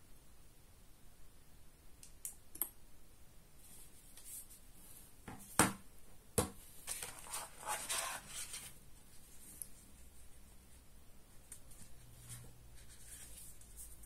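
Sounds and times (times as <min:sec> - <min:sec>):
rustling and scraping: 0:06.8 - 0:10.8, 0:11.4 - 0:14.0.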